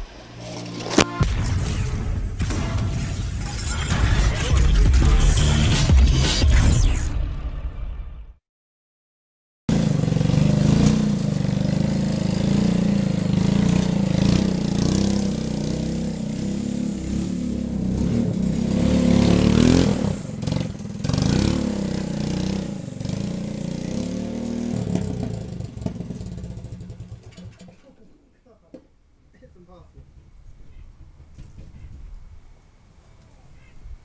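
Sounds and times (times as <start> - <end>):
go-kart engine revving: 9.7 - 28.0.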